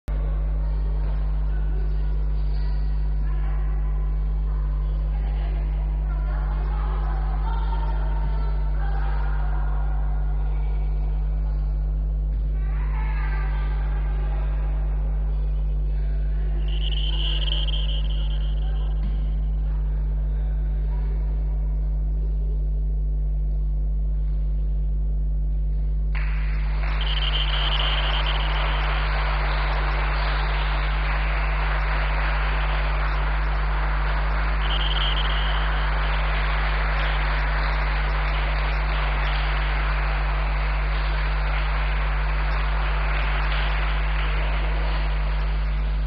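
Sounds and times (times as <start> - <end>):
steady low hum: 0.0 - 46.0
brief high tones: 16.7 - 19.2, 26.8 - 30.9.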